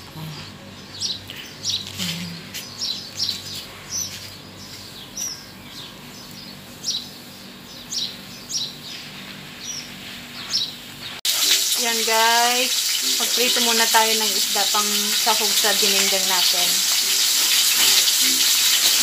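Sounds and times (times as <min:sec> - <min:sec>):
small bird chirping: 0:00.3 - 0:11.2.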